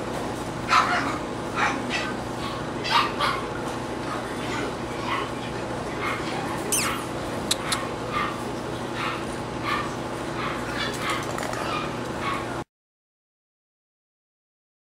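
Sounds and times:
steady background hum: 0:00.0 - 0:12.6
puppies yipping and whining: 0:06.0 - 0:08.4, 0:09.0 - 0:12.6.

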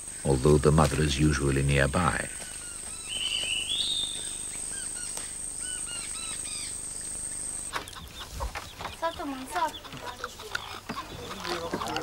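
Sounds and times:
short chirping calls: 0:02.3 - 0:11.4
high-pitched insect whine: 0:02.4 - 0:07.8.

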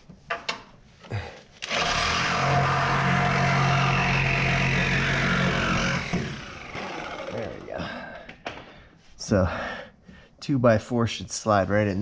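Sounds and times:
power tool cutting sheet steel: 0:01.6 - 0:07.7.

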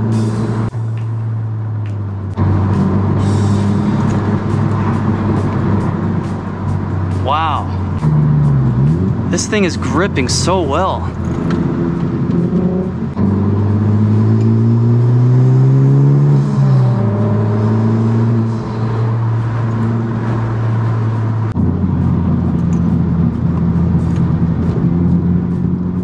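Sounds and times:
car engine revving: 0:00.0 - 0:26.0.

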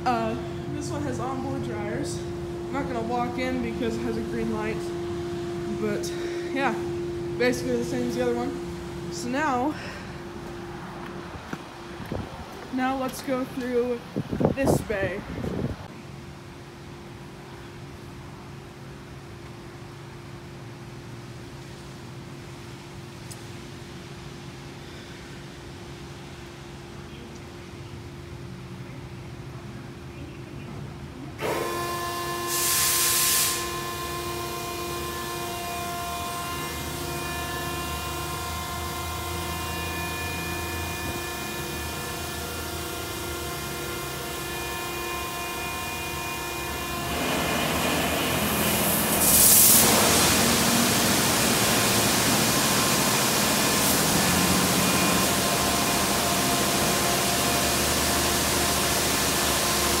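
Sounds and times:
car wash machinery whine: 0:00.0 - 0:27.2, 0:31.2 - 1:00.0
high-pressure water spray hiss: 0:32.4 - 0:33.8, 0:47.2 - 1:00.0.

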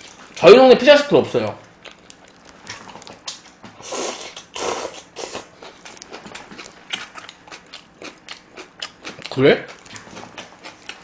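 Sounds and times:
wet chewing with mouth clicks: 0:01.6 - 0:11.0
slurping noodles: 0:03.8 - 0:05.5.

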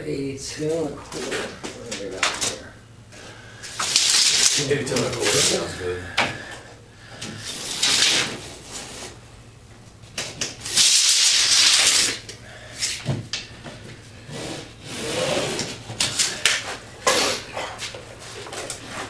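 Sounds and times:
scraping and rustling on drywall: 0:03.6 - 0:05.8, 0:07.2 - 0:09.2, 0:10.2 - 0:12.2, 0:13.7 - 0:19.0.

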